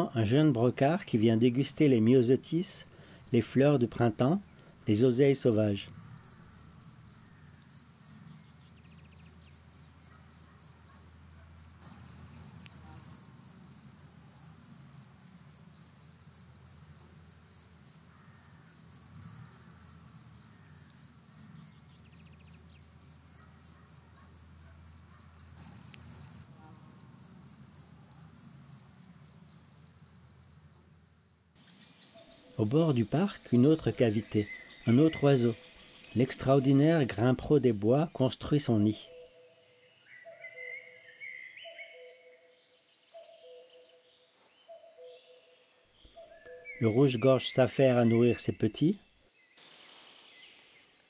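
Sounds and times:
cricket trilling: 0.1s - 31.6s.

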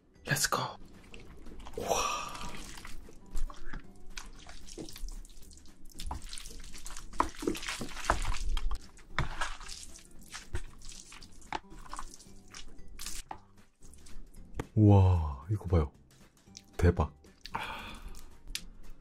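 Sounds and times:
chopsticks mixing sticky noodles: 0.8s - 14.4s
wet sticky squelches: 0.9s - 14.7s, 16.4s - 18.7s.

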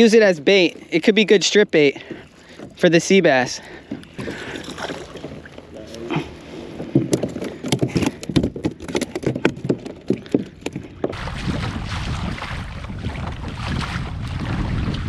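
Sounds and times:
water: 0.0s - 15.0s
fish flopping on plastic deck: 6.7s - 12.4s
wind on microphone: 10.8s - 15.0s.

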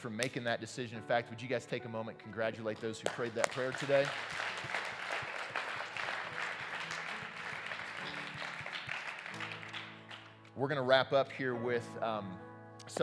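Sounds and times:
congregation applauding: 3.0s - 10.6s.

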